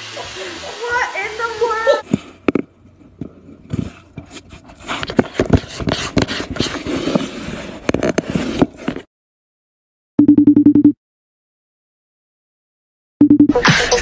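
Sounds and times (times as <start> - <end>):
cardboard scraping and crackling: 2.0 - 9.1
cardboard clicks and rustles: 3.6 - 9.1.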